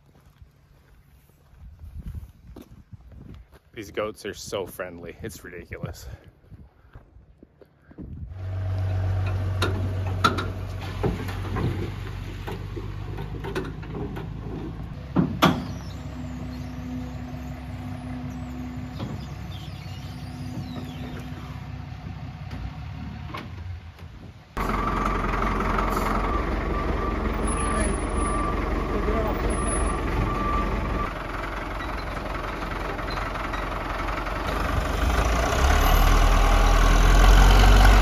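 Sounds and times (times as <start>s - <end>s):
wheel loader diesel engine running: 8.3s - 38.0s.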